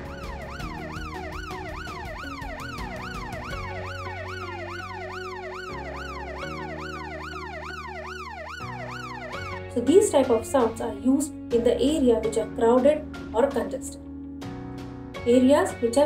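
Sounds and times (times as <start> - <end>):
ambulance siren yelping: 0.0 - 9.7
soft background music: 0.0 - 16.0.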